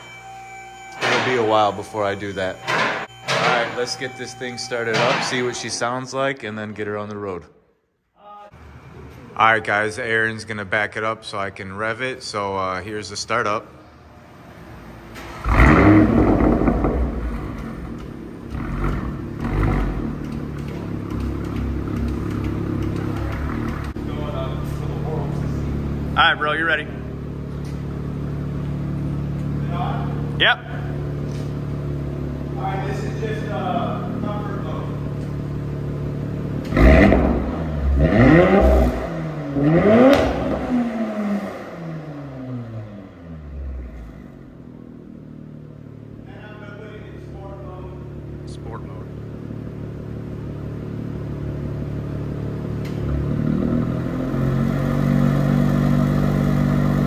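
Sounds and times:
car engine idling: 13.8 - 57.0
exhaust crack: 15.1 - 47.0.

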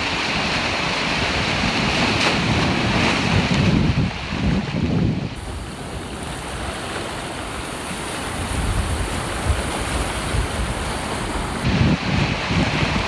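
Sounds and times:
ocean surf breaking on rocks: 0.0 - 13.0
wind rumbling on microphone: 0.0 - 13.0.

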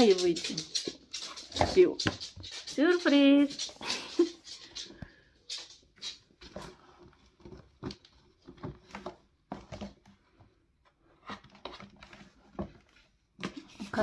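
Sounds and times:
paws tapping on paper: 0.0 - 10.0
cats scrabbling at cardboard box: 0.0 - 10.1.

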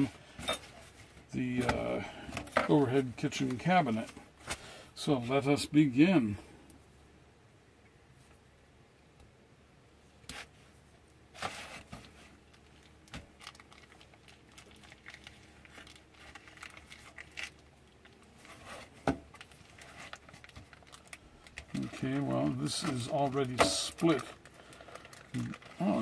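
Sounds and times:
plastic packaging crinkling: 11.4 - 26.0.

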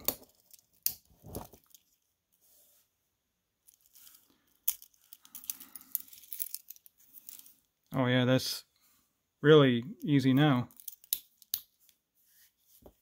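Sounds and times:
metal bracelet clicks and rattles: 3.7 - 7.5, 10.7 - 11.7.

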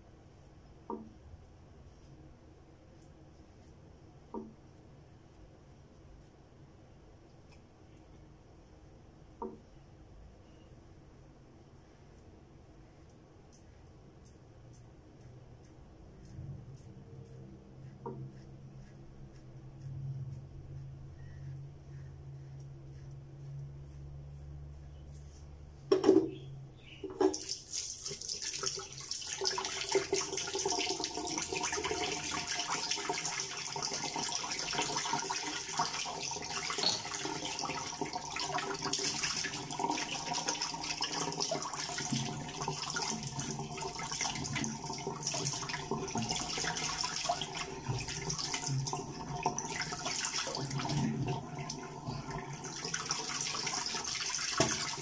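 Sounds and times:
tap water running into sink: 27.1 - 55.0.

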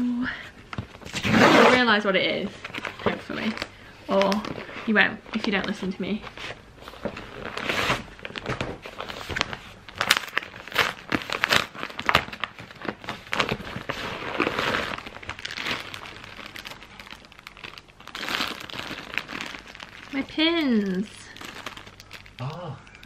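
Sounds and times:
plastic bag rustling: 0.6 - 22.5
paper mailer crinkling and tearing: 6.9 - 22.5.

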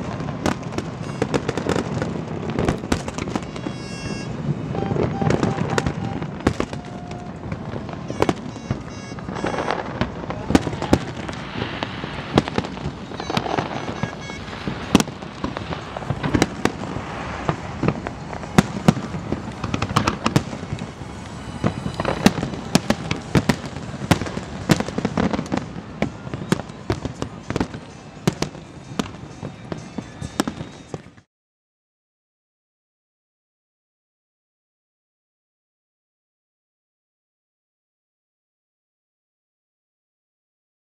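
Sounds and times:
fireworks bangs and crackles: 0.0 - 31.3
rumble of fireworks bursts: 0.0 - 31.3.

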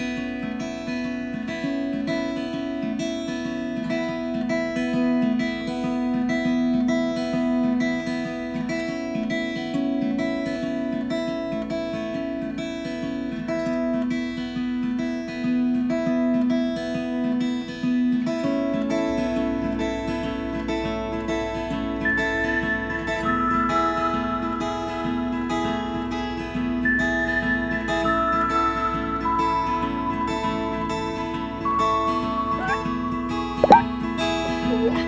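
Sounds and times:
acoustic guitar music: 0.0 - 35.0.

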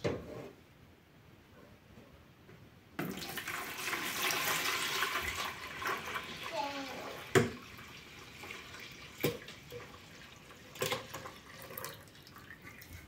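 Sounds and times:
liquid pouring into tub: 3.0 - 13.0.

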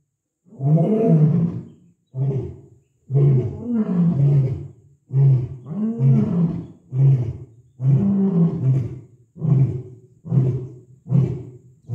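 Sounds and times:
lion roaring: 0.5 - 11.9.

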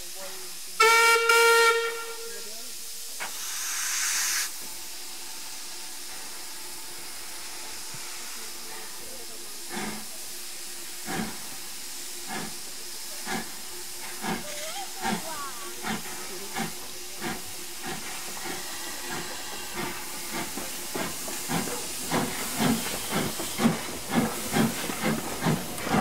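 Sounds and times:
loud steam hiss: 0.0 - 26.0
slow locomotive exhaust beats: 0.0 - 26.0
steam locomotive whistle: 0.8 - 2.5.

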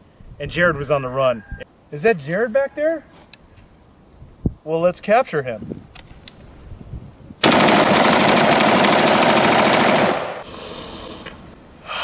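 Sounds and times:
automatic gunfire: 7.4 - 10.4
gunfire echo: 7.4 - 10.4.

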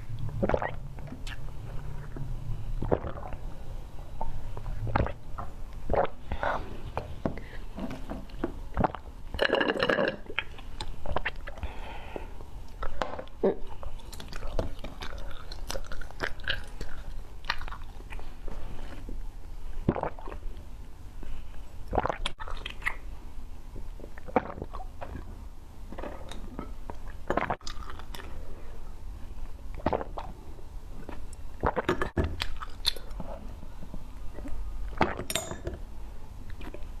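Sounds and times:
sucking and chewing: 0.1 - 3.5, 12.6 - 19.1, 21.9 - 23.1, 25.9 - 28.5, 31.0 - 33.6
wet mouth noises: 0.1 - 3.5, 4.1 - 9.5, 10.3 - 11.6, 19.9 - 20.5, 21.9 - 23.1, 24.2 - 25.3, 25.9 - 28.3, 29.7 - 30.4, 31.0 - 33.4.

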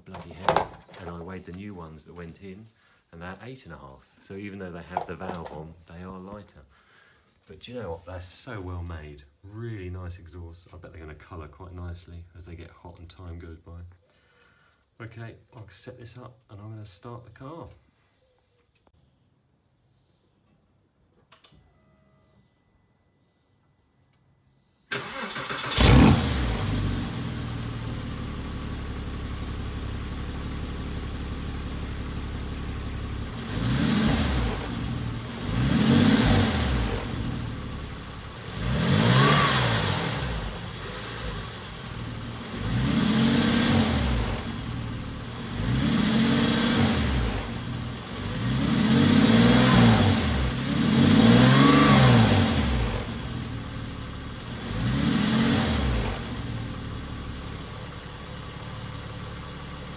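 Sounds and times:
car engine starting and revving: 24.9 - 59.9.

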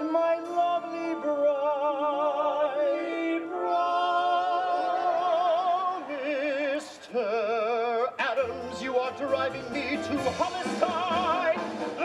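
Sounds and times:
person singing with vibrato: 0.0 - 12.0
instrumental accompaniment: 8.4 - 12.0.

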